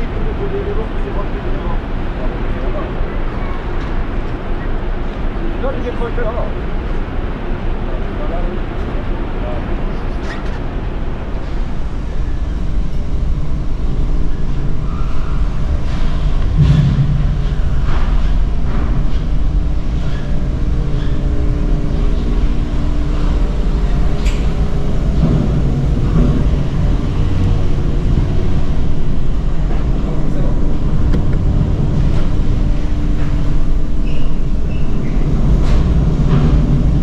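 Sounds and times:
machinery rumble and hum: 0:00.0 - 0:37.0.

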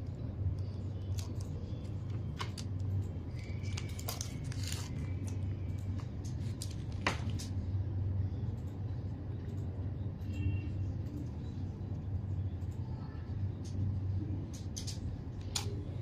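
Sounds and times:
steady low hum: 0:00.0 - 0:16.0
plastic crinkling: 0:03.3 - 0:07.5.

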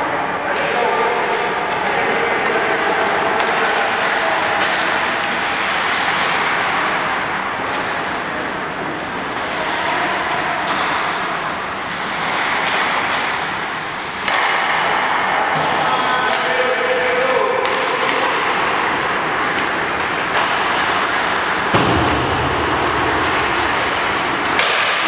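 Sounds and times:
arena noise: 0:00.0 - 0:25.0
sticks and pucks clacking: 0:00.5 - 0:25.0
skates hissing on ice: 0:05.3 - 0:07.1, 0:11.8 - 0:14.3.

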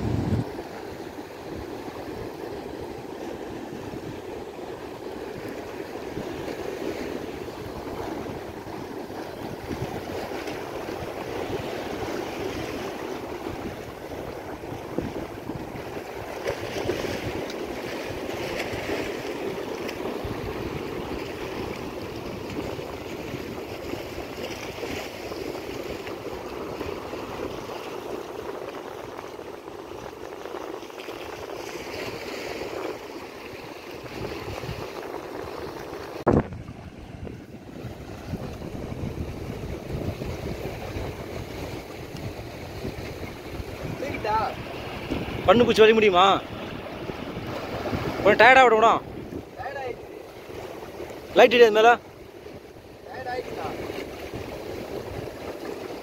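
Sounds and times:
sea surf: 0:00.0 - 0:56.0.

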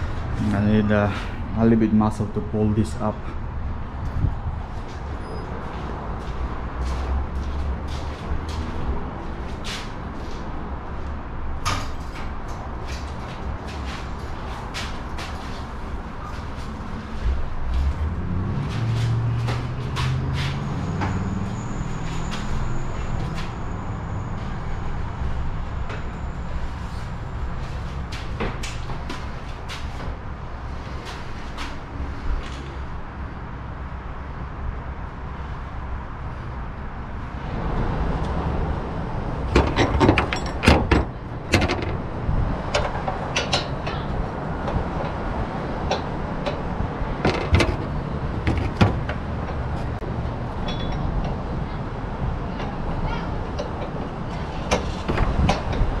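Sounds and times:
clamp clicking and knocking: 0:39.5 - 0:42.1, 0:45.9 - 0:49.3.

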